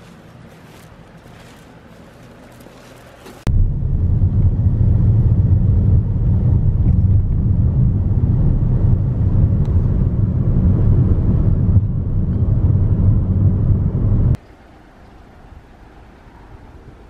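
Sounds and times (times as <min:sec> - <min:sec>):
wind buffeting microphone: 0:03.4 - 0:14.4.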